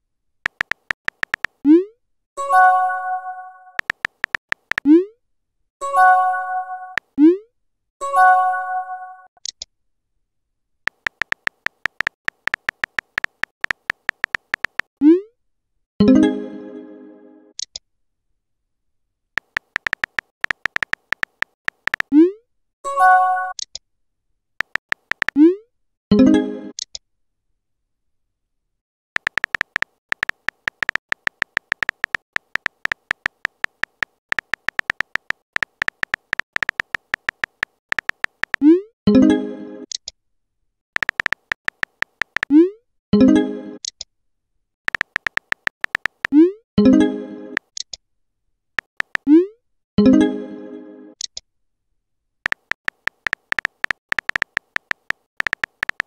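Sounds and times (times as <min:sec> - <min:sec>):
quick keyboard taps: 0:00.5 - 0:01.6, 0:03.8 - 0:04.9, 0:10.9 - 0:14.9, 0:19.4 - 0:22.1, 0:24.6 - 0:25.4, 0:29.2 - 0:38.6, 0:41.0 - 0:42.5, 0:44.9 - 0:46.4, 0:48.8 - 0:49.3, 0:52.5 - 0:56.0.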